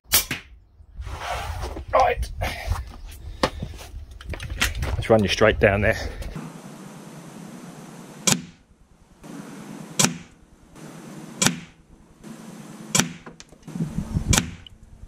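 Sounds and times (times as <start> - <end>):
air rifle shots: 8.2 - 14.6.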